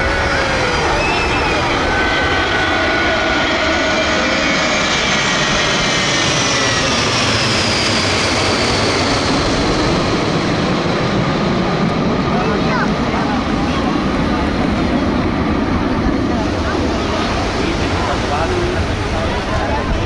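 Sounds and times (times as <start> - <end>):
airplane engine roar: 0.0 - 20.0.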